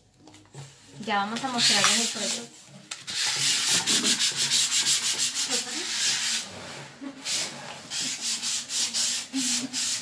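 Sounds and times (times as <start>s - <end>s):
sandpaper rubbing: 1.6s - 2.5s, 3.1s - 10.0s.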